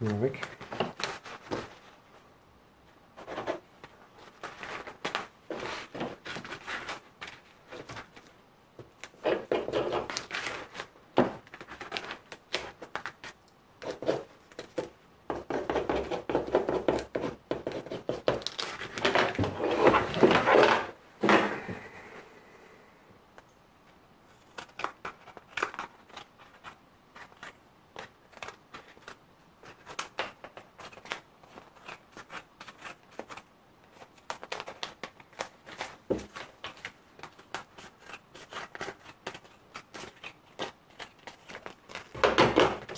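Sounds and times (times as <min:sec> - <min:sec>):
masking tape crinkling and tearing: 0:03.8 - 0:14.8, 0:18.2 - 0:20.9, 0:24.3 - 0:42.9
scissors snipping tape and paper: 0:24.4 - 0:42.2.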